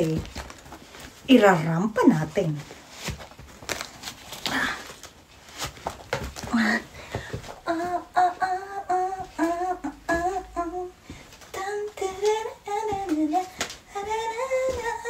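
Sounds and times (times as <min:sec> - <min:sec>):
footfalls on floor: 0:00.0 - 0:08.0, 0:09.2 - 0:15.0
woman singing wordless tune: 0:06.6 - 0:15.0.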